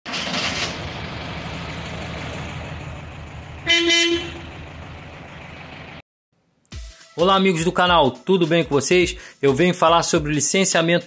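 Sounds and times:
vehicle engine running: 0:00.1 - 0:06.0
car horn toot: 0:03.6 - 0:04.5.

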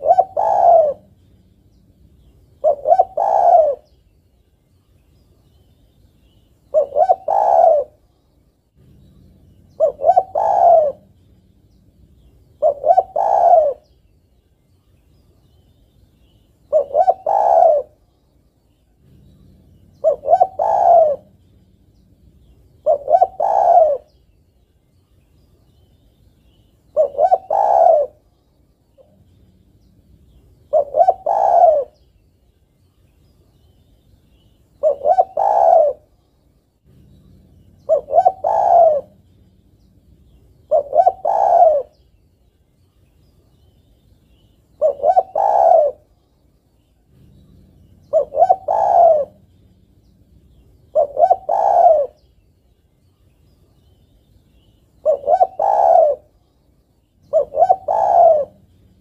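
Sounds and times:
dove cooing: 0:00.0 - 0:04.0, 0:06.3 - 0:08.1, 0:08.8 - 0:14.0, 0:16.6 - 0:18.1, 0:18.9 - 0:24.3, 0:26.9 - 0:28.3, 0:29.0 - 0:32.1, 0:34.3 - 0:36.2, 0:36.9 - 0:42.1, 0:44.3 - 0:46.2, 0:47.0 - 0:52.4, 0:54.6 - 0:56.5, 0:57.2 - 0:59.0.

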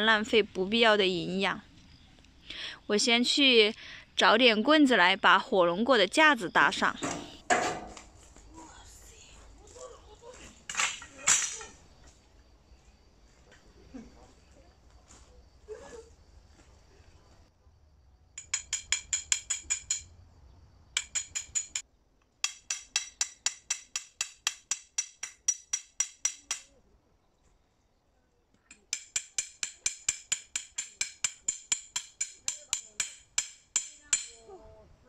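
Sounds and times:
hammer ringing on stake: 0:28.9 - 0:34.4.

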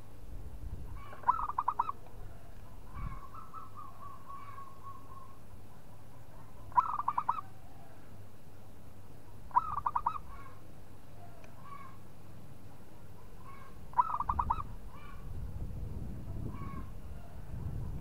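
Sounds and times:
dove cooing: 0:01.0 - 0:05.4, 0:06.6 - 0:08.0, 0:09.5 - 0:10.6, 0:13.5 - 0:15.2.

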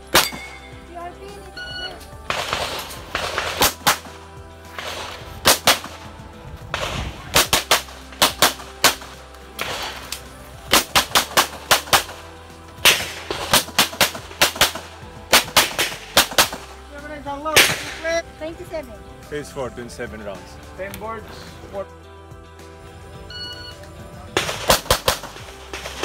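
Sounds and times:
handgun shots: 0:00.1 - 0:00.6, 0:02.3 - 0:04.1, 0:04.8 - 0:06.0, 0:06.8 - 0:12.2, 0:12.8 - 0:16.7, 0:17.6 - 0:18.0, 0:24.4 - 0:26.0.

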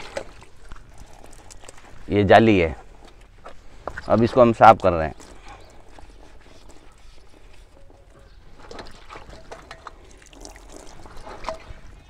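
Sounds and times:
splashes and drips: 0:00.0 - 0:02.0, 0:08.4 - 0:12.0
scrubbing and sloshing liquid: 0:00.0 - 0:02.1, 0:04.8 - 0:12.0.

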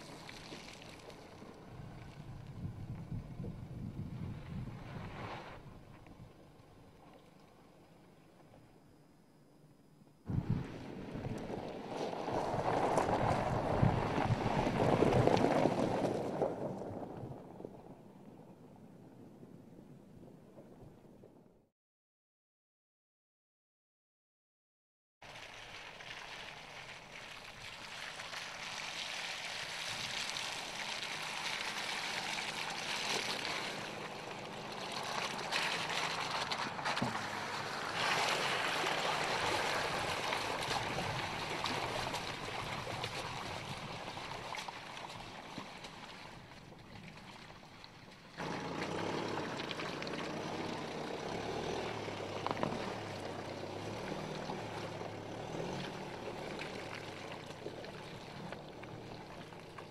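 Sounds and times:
tyres splashing through mud: 0:00.0 - 0:02.9, 0:10.3 - 0:18.1, 0:25.2 - 0:59.9
diesel engine working: 0:48.4 - 0:59.9.

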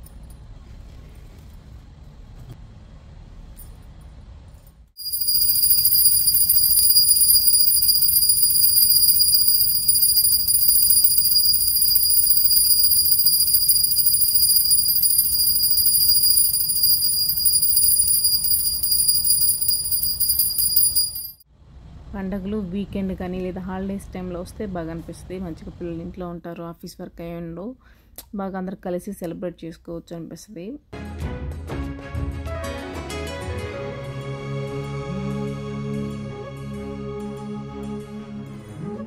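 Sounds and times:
small brass hand bell ringing: 0:05.0 - 0:21.4.

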